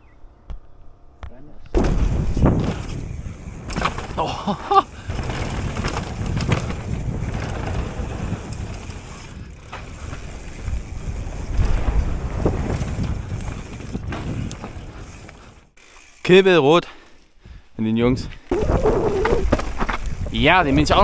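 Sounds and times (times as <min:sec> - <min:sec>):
wind buffeting microphone: 0:04.9 - 0:15.5.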